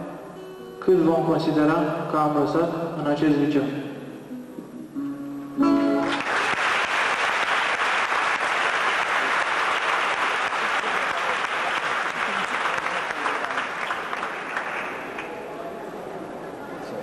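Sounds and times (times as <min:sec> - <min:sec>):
audience applause: 0:06.0 - 0:15.7.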